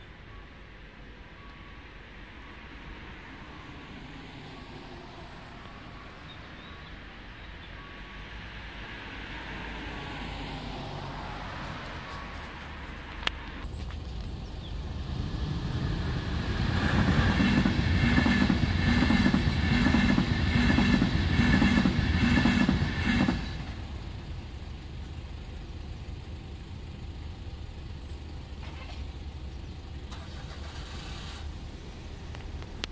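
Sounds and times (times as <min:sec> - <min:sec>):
passenger train passing: 0:00.0 - 0:27.9
train wheels clacking: 0:16.0 - 0:23.9.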